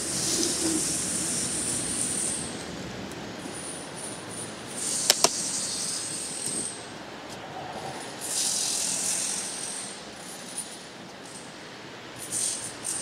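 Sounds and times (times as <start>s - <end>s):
sharp clicks: 5.1s - 5.4s.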